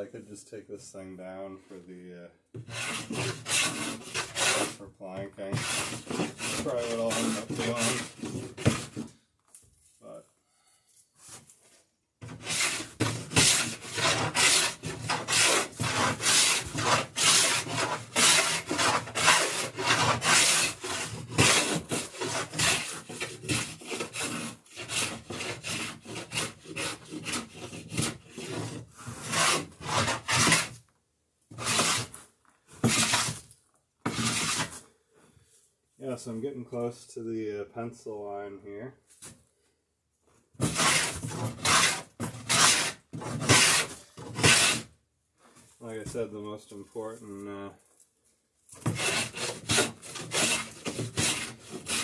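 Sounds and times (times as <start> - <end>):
hand plane cutting wood: 2.6 - 4.8, 5.5 - 9.1, 12.2 - 30.8, 31.5 - 32.2, 32.8 - 33.4, 34.0 - 34.8, 40.6 - 44.9, 48.8 - 52.0.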